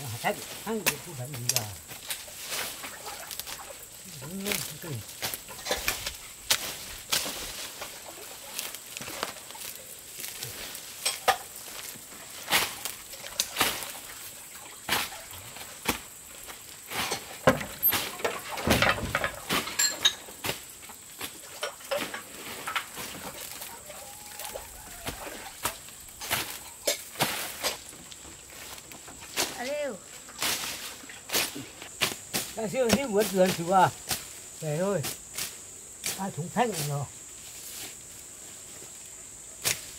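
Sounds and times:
grass being pulled up: 0.0 - 39.9
sharp snapping crackles: 0.7 - 2.2.

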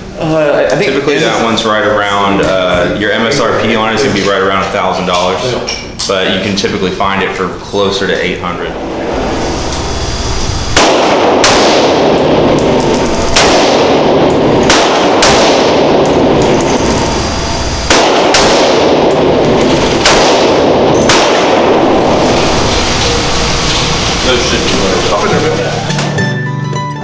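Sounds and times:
rifle shots reverberating indoors: 10.8 - 22.2.

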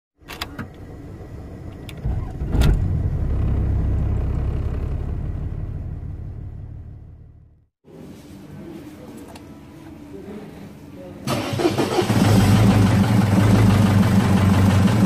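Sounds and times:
diesel engine starting and idling: 0.3 - 7.6, 11.3 - 15.0.

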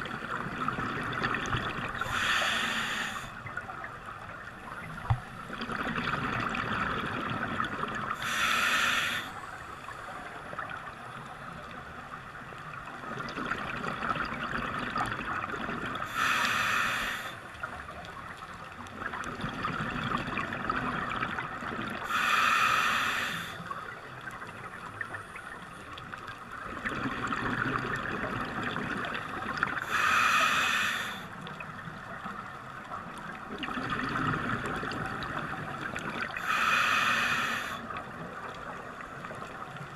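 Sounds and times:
hissing regulator inhales: 2.0 - 3.4, 8.2 - 9.5, 16.0 - 17.4, 22.0 - 23.7, 29.8 - 31.3, 36.4 - 37.9
rush of exhaled bubbles: 5.0 - 8.2, 26.6 - 29.9, 33.5 - 36.5.

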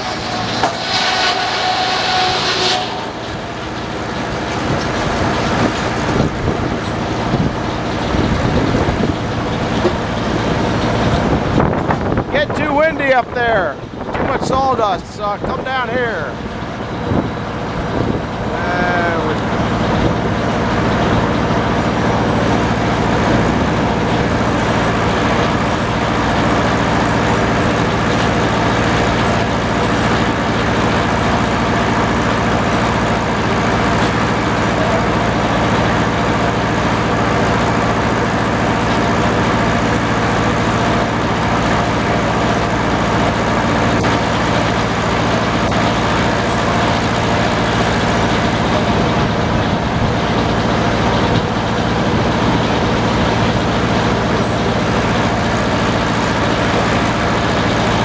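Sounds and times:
circular saw blade spinning: 0.0 - 7.2.

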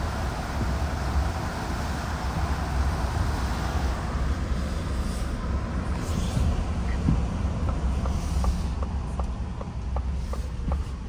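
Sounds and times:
tyre hiss on wet road: 0.0 - 6.8, 8.0 - 8.9, 10.1 - 11.0
low road rumble: 0.0 - 11.0.

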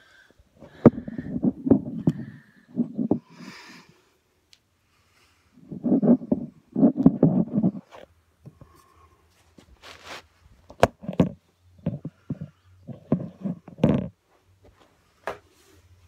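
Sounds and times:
person breathing and sighing: 0.0 - 4.2
soft rustling: 5.6 - 8.1, 9.3 - 10.6.

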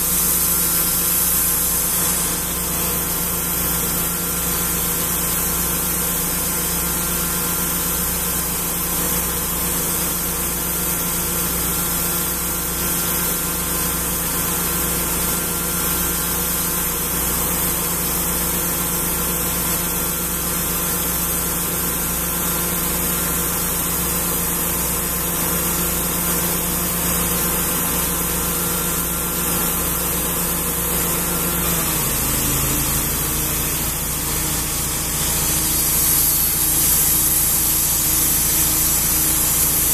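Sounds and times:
saw blade hissing: 0.0 - 5.9, 23.1 - 39.9
saw engine running: 0.0 - 39.9.

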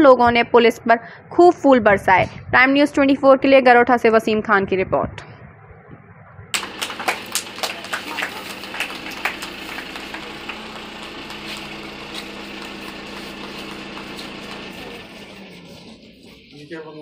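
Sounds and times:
steady mechanical hum: 6.6 - 17.0.

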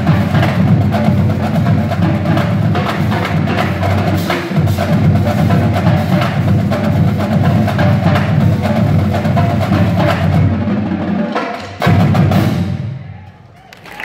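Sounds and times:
bass drums: 0.0 - 12.9
snare drums: 0.0 - 14.0.

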